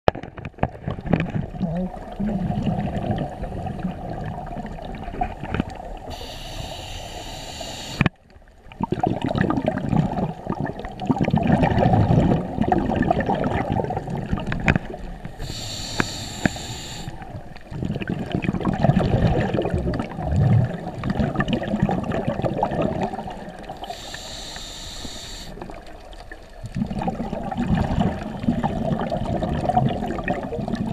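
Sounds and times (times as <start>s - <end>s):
exhaled air bubbling: 0.8s - 30.9s
regulator inhale hiss: 6.1s - 8.1s, 15.3s - 17.3s, 23.7s - 25.6s.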